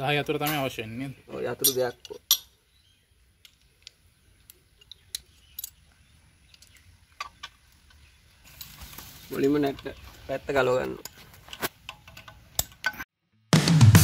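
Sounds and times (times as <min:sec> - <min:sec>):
spanner and bolts clinking: 0:01.4 - 0:02.6, 0:04.7 - 0:13.0.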